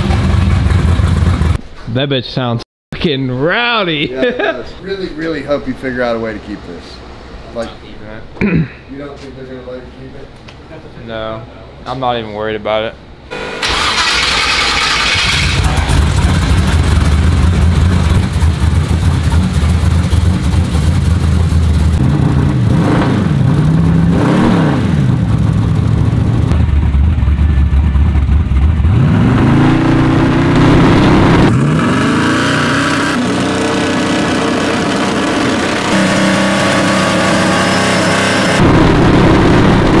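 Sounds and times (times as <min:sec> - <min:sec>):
car engine revving: 0:13.3 - 0:40.0.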